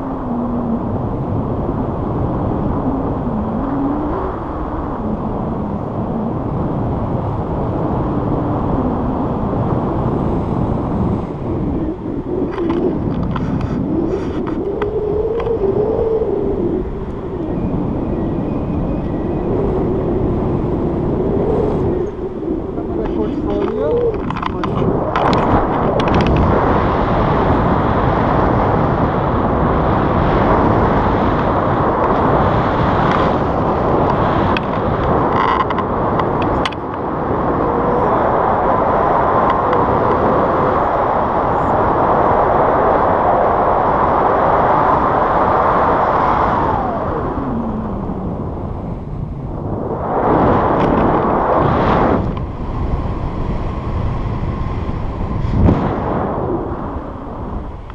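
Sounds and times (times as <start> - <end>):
wind rushing over microphone: 0.0 - 57.9
faint gliding whistle: 17.2 - 20.3.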